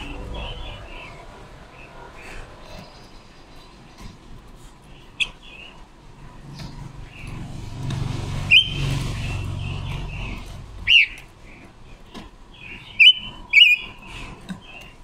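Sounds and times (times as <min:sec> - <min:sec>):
soft bird chirps: 0:08.4 - 0:15.0.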